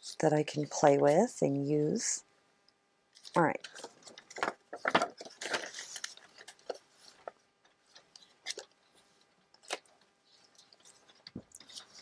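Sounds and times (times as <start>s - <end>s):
paper rustling and crinkling: 3.1s - 12.0s.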